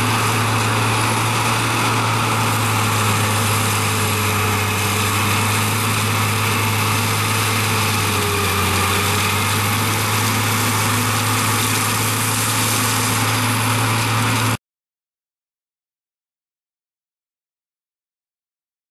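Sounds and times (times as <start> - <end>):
forestry mulcher running: 0.0 - 14.6.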